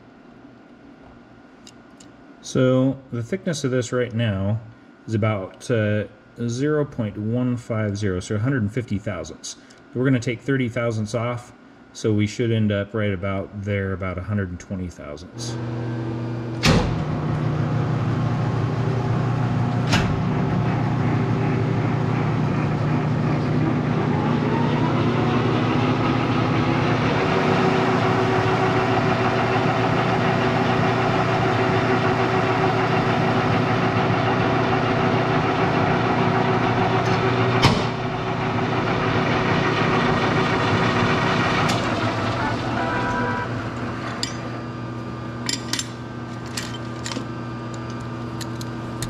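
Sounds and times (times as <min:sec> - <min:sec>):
lathe motor hum: 0:15.4 - 0:45.4.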